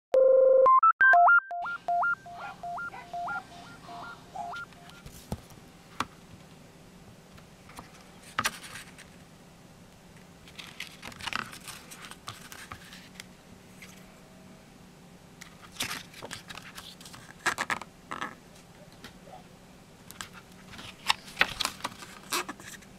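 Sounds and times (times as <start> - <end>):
electronic beeping jingle: 0.2 - 5.0
paper pages rustling: 7.7 - 9.2, 10.4 - 14.0, 15.4 - 17.8, 20.2 - 22.9.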